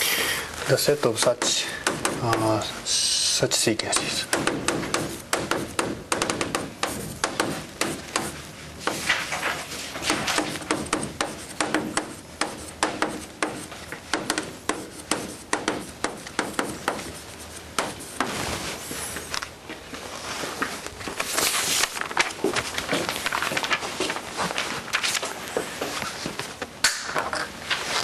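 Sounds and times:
chalk writing on blackboard: 0.8s - 9.1s, 10.0s - 19.1s.

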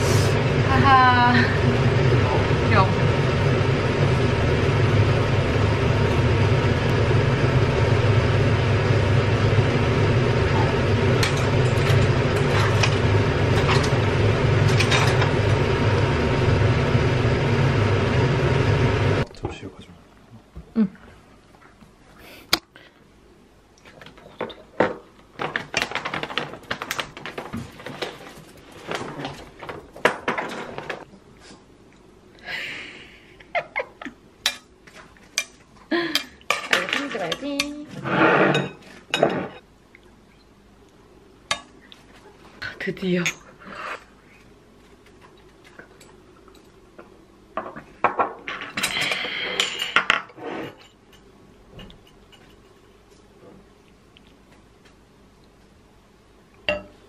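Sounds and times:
tableware clinking and scraping: 14.7s - 15.4s, 36.5s - 39.7s, 48.1s - 53.0s.

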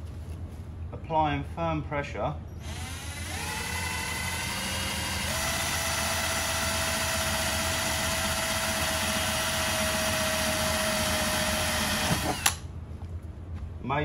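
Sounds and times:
cordless drill whining: 2.6s - 12.6s.

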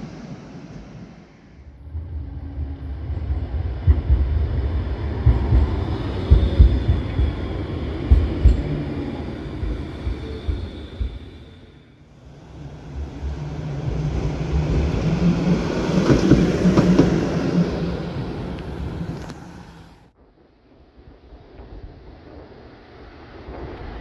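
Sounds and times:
tram rumbling over rails: 0.0s - 20.2s.

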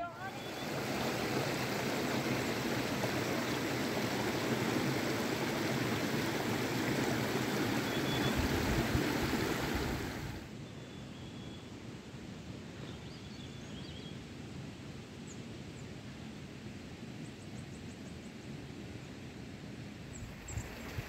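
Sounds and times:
stream running over rocks: 0.0s - 10.5s, 20.2s - 21.0s
faint outdoor ambience: 0.0s - 21.0s.

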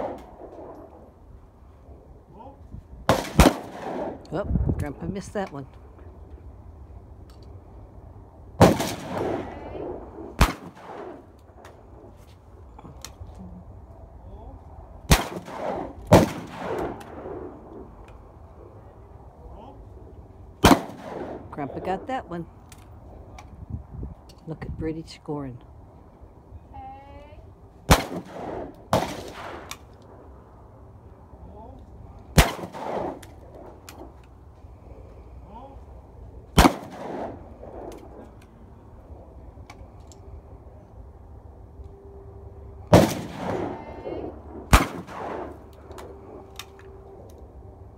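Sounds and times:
shotgun shot: 0.0s - 0.7s, 3.1s - 4.2s, 8.6s - 11.3s, 15.1s - 17.6s, 20.6s - 21.6s, 27.9s - 29.8s, 32.4s - 33.3s, 36.6s - 38.2s, 42.9s - 45.6s.

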